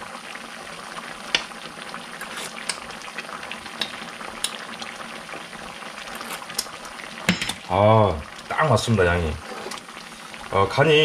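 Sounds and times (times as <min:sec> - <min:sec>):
stew bubbling in a pan: 0:00.0 - 0:11.0
metal spoon knocking on pan: 0:07.3 - 0:07.6.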